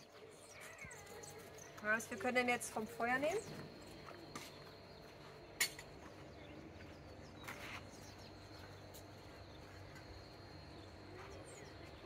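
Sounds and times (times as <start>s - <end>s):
insects high tone: 8.0s - 12.0s.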